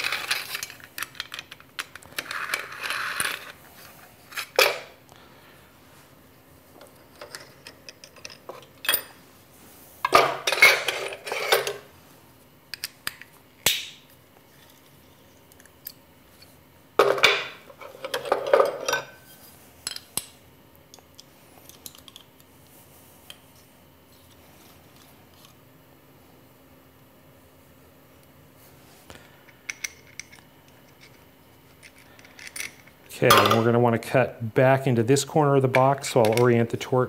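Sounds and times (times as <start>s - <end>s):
faint steady hum: 0.0s - 37.0s
metal parts clinking and clattering: 7.0s - 9.2s.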